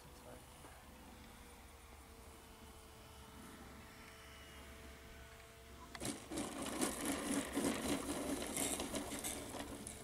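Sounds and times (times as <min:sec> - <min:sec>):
model plane rattling over grass: 0:04.7 - 0:10.0.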